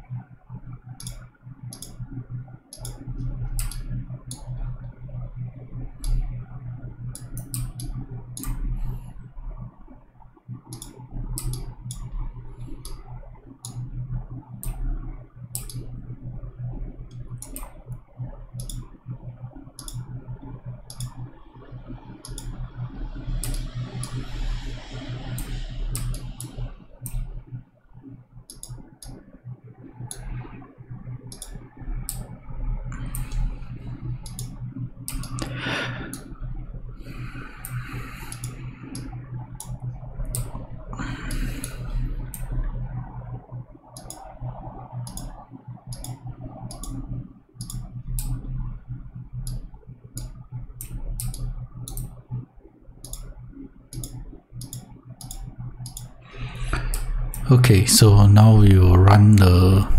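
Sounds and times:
steady low hum: 0.0s - 59.9s
computer mouse clicking: 0.8s - 6.3s, 7.1s - 8.7s, 10.7s - 16.0s, 17.1s - 27.4s, 28.4s - 29.2s, 30.0s - 30.4s, 31.2s - 36.3s, 37.0s - 42.5s, 43.9s - 48.6s, 49.4s - 52.2s, 53.0s - 57.4s.

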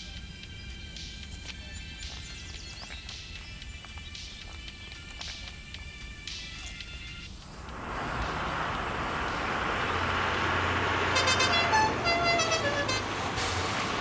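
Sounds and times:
bus engine rumble: 0.0s - 14.0s
bus horn honks: 10.1s - 14.0s.

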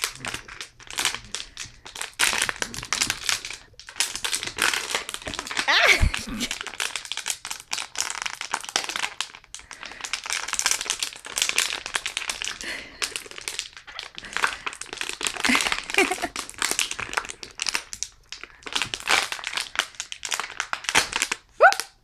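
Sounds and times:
plastic bottle crackling: 0.0s - 21.9s.

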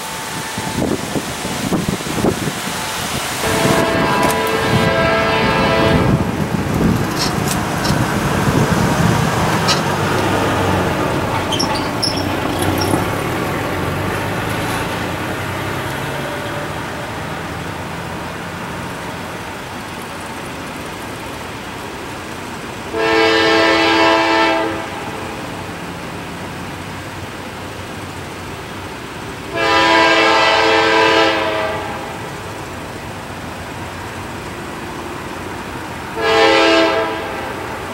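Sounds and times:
locomotive air horn blast: 0.0s - 1.4s, 2.8s - 6.4s, 22.9s - 25.3s, 29.5s - 32.2s, 36.2s - 37.8s.

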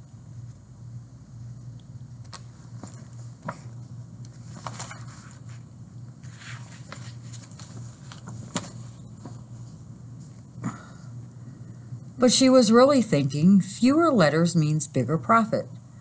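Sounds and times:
low background hum: 0.0s - 16.0s
paper rustling: 2.2s - 9.7s.

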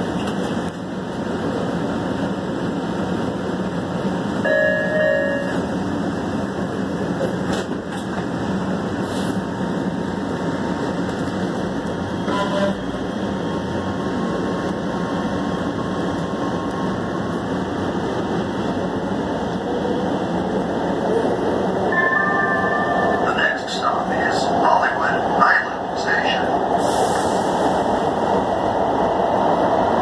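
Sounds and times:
subway train wheels rumbling: 0.0s - 30.0s
high-pitched tones: 21.9s - 23.7s.

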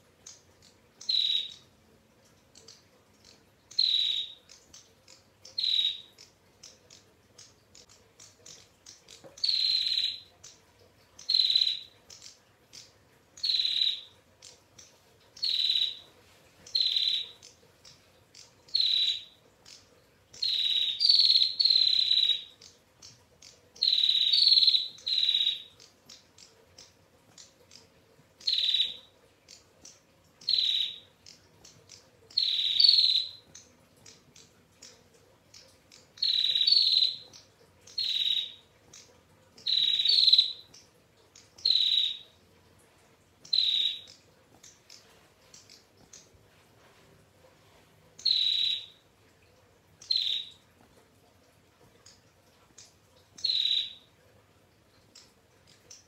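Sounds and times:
bird trilling calls: 1.0s - 1.6s, 3.7s - 4.5s, 5.1s - 6.3s, 9.4s - 10.3s, 15.4s - 16.0s, 16.7s - 17.4s, 18.7s - 19.8s, 36.2s - 37.3s, 37.9s - 38.6s, 39.7s - 40.6s, 43.5s - 44.2s, 48.2s - 49.0s, 53.4s - 54.0s.

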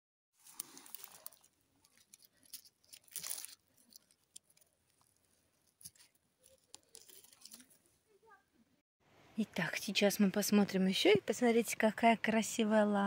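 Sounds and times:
rustling of dry leaves: 0.4s - 4.6s
small crackles of twigs: 0.4s - 8.0s.

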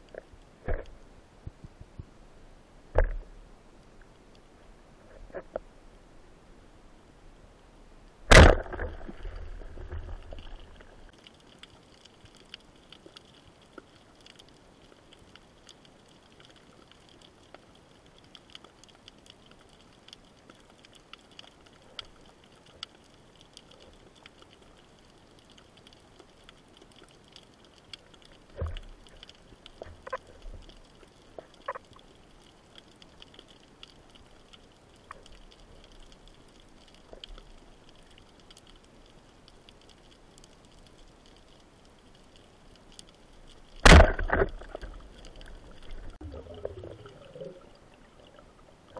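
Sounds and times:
sharp underwater bang: 8.3s - 9.1s, 43.8s - 44.5s.

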